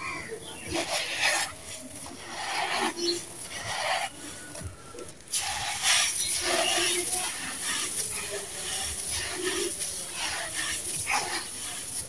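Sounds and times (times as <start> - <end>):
hands crumbling gritty sand mix: 5.4 - 12.0.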